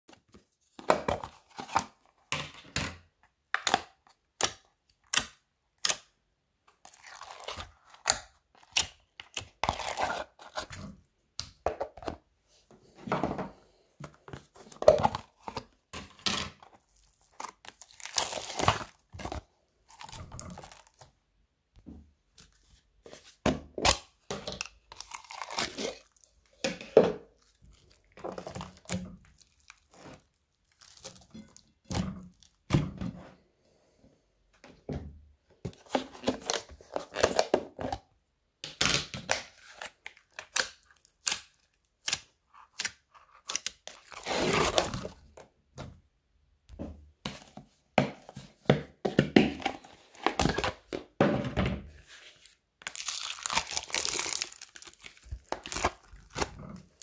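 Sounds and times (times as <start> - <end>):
crunchy slime crackling: 16.8 - 21.0, 52.8 - 57.0.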